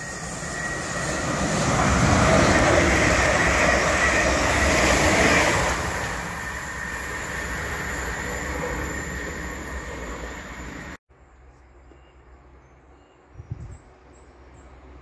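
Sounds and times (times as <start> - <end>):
electric train passing: 0.0 - 11.0.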